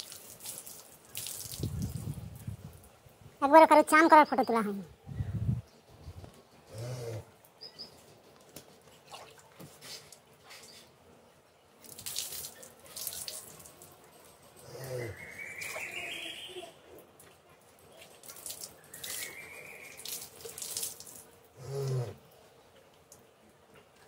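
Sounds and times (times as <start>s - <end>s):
container filling with water: 0.0s - 2.0s
water splashing on concrete: 0.0s - 2.2s, 11.8s - 13.9s, 17.2s - 21.4s.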